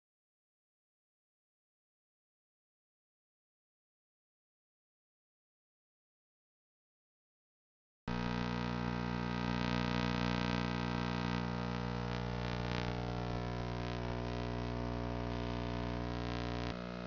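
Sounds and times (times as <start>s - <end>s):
electrical hum: 8.1s - 17.0s.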